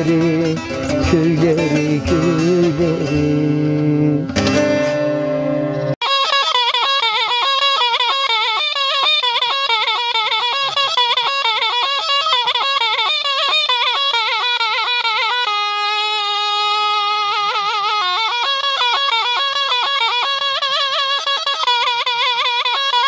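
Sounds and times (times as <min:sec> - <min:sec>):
reedy wind instrument melody: 0:00.0 - 0:23.0.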